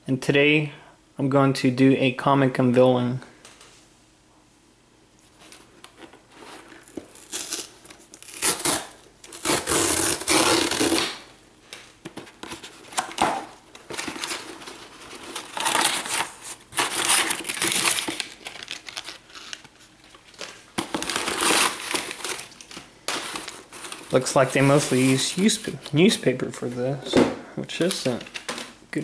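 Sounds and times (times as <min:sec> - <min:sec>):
cardboard box tearing: 0:06.8 - 0:11.2, 0:15.3 - 0:19.5, 0:20.8 - 0:22.4.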